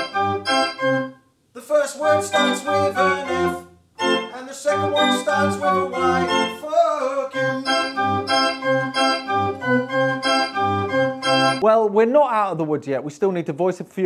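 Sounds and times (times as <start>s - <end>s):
pulsing organ bass notes: 0.0s - 1.1s, 2.1s - 6.6s, 7.3s - 11.6s
pipe organ chords: 0.0s - 1.2s, 2.0s - 11.6s.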